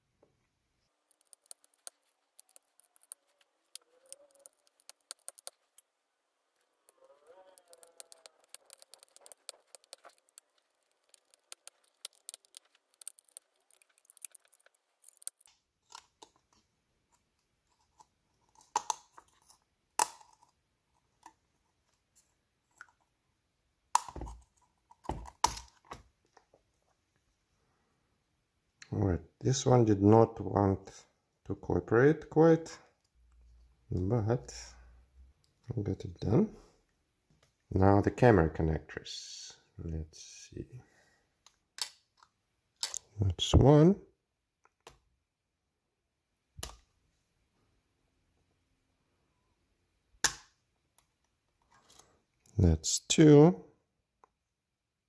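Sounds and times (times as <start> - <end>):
metal tweezers clicking and scraping: 1.0 - 5.9, 6.6 - 16.1.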